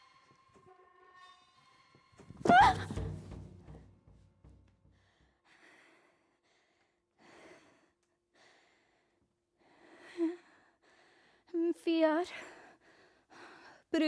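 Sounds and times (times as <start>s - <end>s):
drum low ringing: 2.3s - 5.2s.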